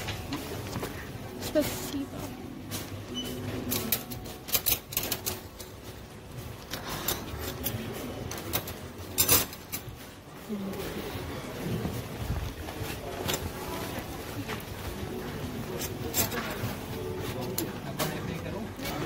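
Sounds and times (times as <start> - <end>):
cutlery and dishes clattering: 3.2 - 5.7, 6.7 - 10.0, 15.7 - 16.8.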